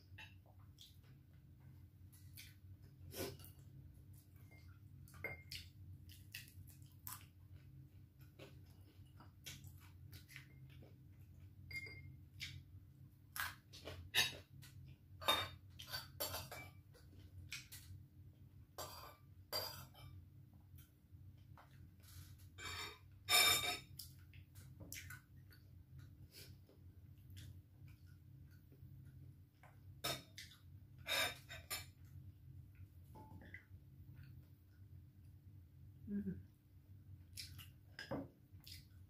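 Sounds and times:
faint room hum: 0.0 - 39.0
metal spoon clinking glass bowl: 11.7 - 12.1.

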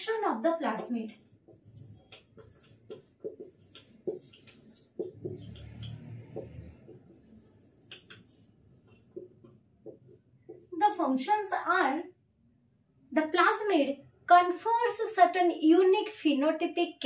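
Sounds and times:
marker pen writing on whiteboard: 0.0 - 12.2.

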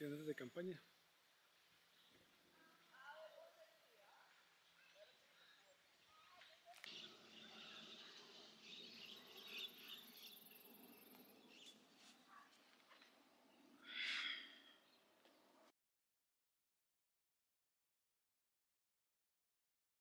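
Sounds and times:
birds chirping: 0.0 - 15.7.

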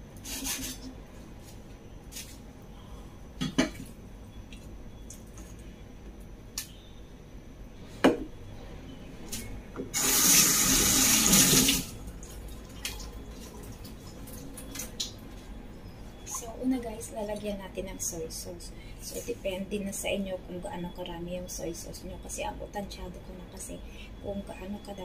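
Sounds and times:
kitchen tap running: 9.9 - 15.1.

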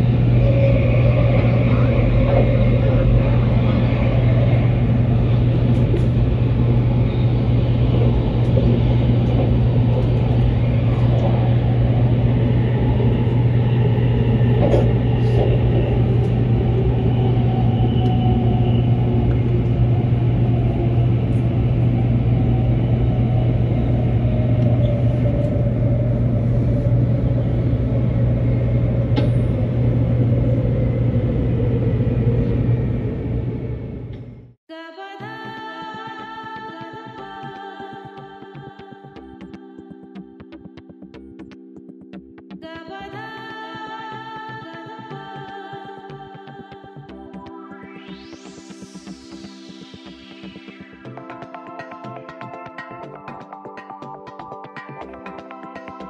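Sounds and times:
constant low hum: 0.0 - 34.6
train rumbling at speed: 0.0 - 34.6.

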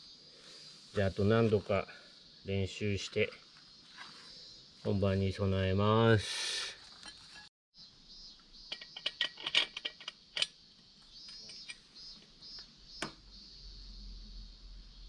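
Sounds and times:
faint high hiss: 0.0 - 6.8.

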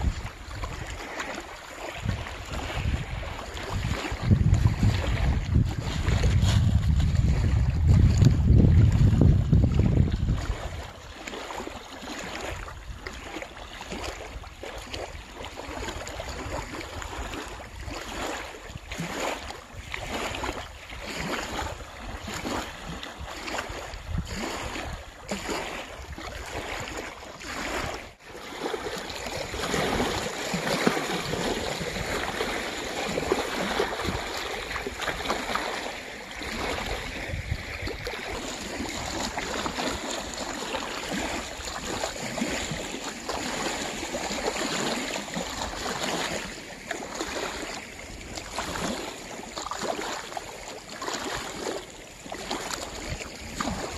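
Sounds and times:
wind buffeting microphone: 0.0 - 13.3, 13.9 - 46.6, 52.4 - 53.9
steady wind: 0.0 - 50.6, 51.2 - 53.9
waves lapping on gravel shore: 0.0 - 53.9.

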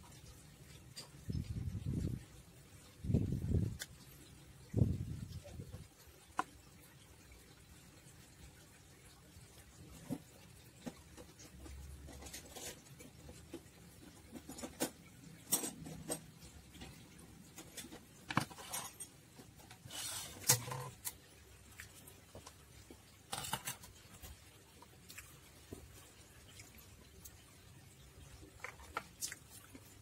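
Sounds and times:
plastic parts clicking and tapping: 5.7 - 6.6, 9.9 - 21.2.

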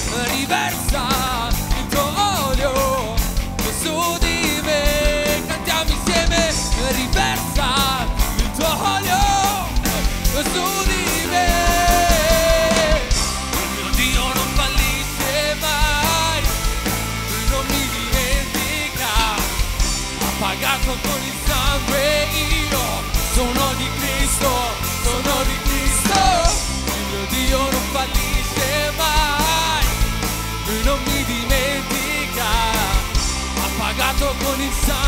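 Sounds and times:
man singing: 0.0 - 35.0
rock band playing: 0.0 - 35.0.

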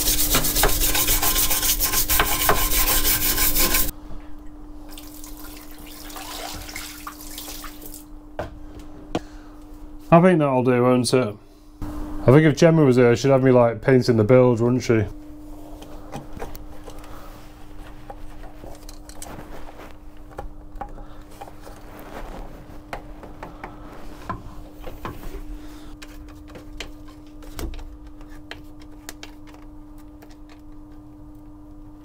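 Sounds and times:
steady hum: 0.0 - 32.0.

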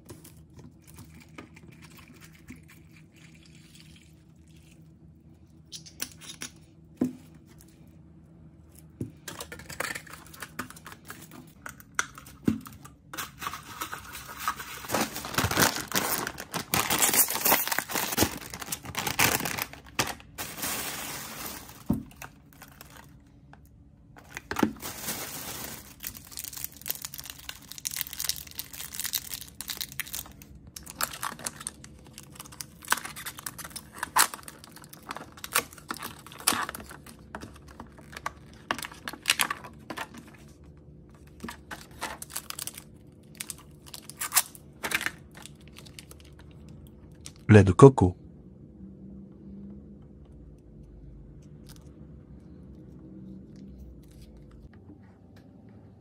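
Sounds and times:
plastic wrappers crinkling: 9.2 - 23.6, 24.2 - 47.4.

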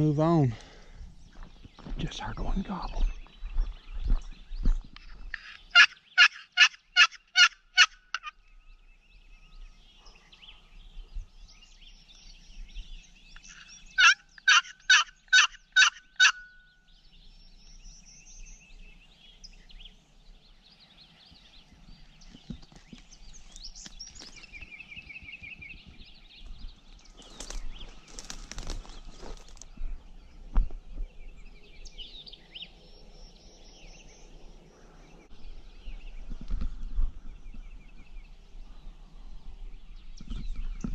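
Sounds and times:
songbirds chirping: 0.0 - 40.9
turkey call yelps: 5.4 - 8.3, 13.5 - 16.6
rustling of brush and twigs: 21.2 - 31.5.

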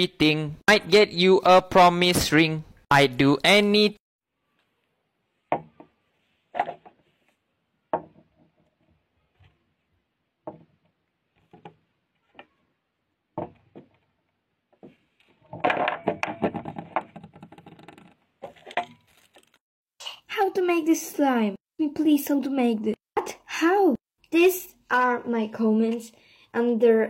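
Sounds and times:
soap bars tapping and knocking: 10.4 - 11.8, 13.3 - 14.0.

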